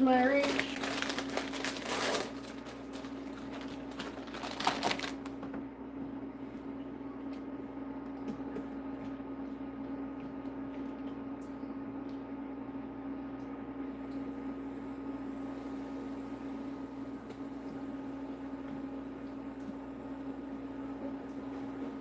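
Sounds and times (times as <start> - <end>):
plastic package crinkling: 0.0 - 5.5.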